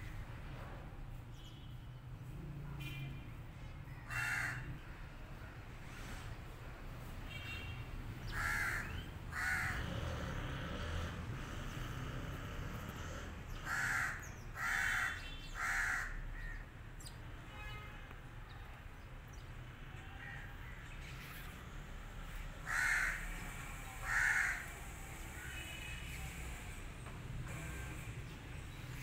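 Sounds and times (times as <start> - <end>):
crow cawing: 4.1 - 4.7, 8.3 - 10.0, 13.6 - 16.6, 22.6 - 23.4, 24.0 - 24.7.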